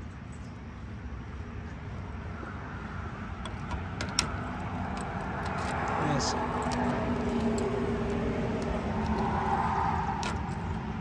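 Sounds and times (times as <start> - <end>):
keys jingling: 0.0 - 0.6, 3.5 - 8.2.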